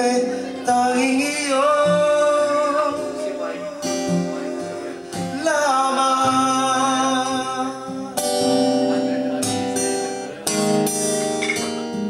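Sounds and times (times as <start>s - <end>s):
man singing: 0.0s - 9.1s
acoustic guitar strummed: 0.0s - 12.0s.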